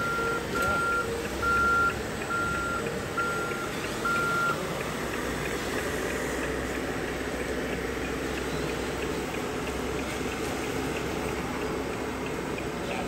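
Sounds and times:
reversing alarm beeps: 0:00.0 - 0:04.6
mixed background noise: 0:00.0 - 0:13.0.

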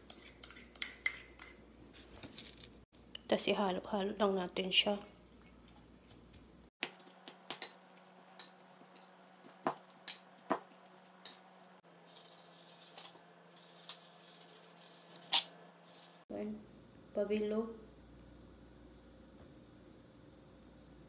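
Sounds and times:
spoon clinking on glass bowl: 0:00.1 - 0:01.6.

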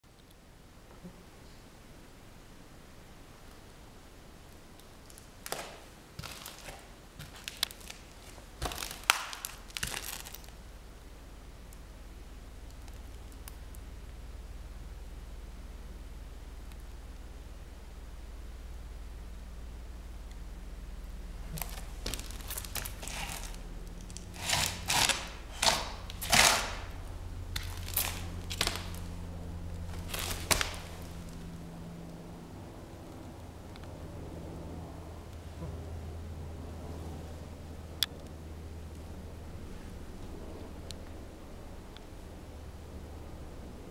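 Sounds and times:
low steady hum: 0:00.0 - 0:43.9
crunches on gritty floor: 0:05.2 - 0:10.6, 0:21.4 - 0:29.2, 0:29.8 - 0:31.4.

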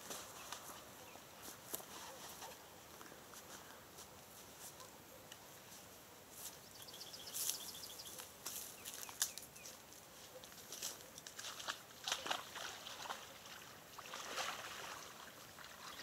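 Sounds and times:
footsteps through dry reeds: 0:00.0 - 0:04.8, 0:05.6 - 0:13.2
bird trill: 0:06.7 - 0:08.2.

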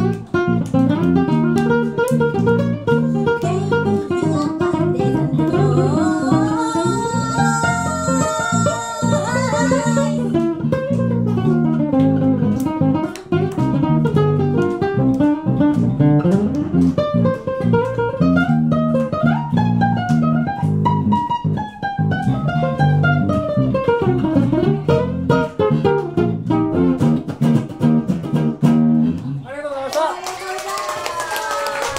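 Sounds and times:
acoustic guitar strumming: 0:00.0 - 0:29.1
plucked string lead line: 0:00.0 - 0:29.4
person singing: 0:02.9 - 0:10.4.

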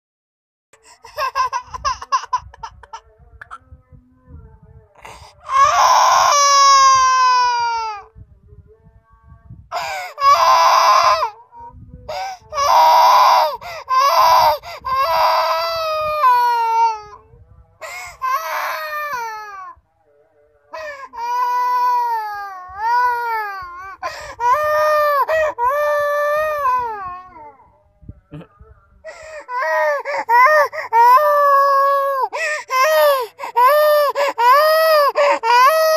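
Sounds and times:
toddler crying: 0:01.0 - 0:03.0, 0:05.4 - 0:08.0, 0:12.5 - 0:17.2, 0:21.0 - 0:27.5, 0:29.3 - 0:35.9
toddler gasping for breath: 0:32.3 - 0:32.6.

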